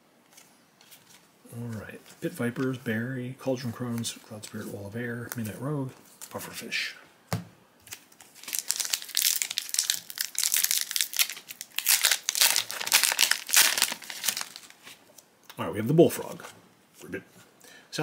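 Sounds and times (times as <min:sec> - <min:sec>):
foil wrapper tearing and crinkling: 0:07.9 - 0:15.0.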